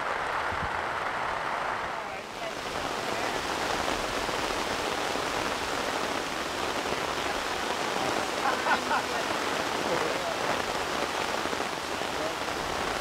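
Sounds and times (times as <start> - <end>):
heavy rain: 0.0 - 13.0.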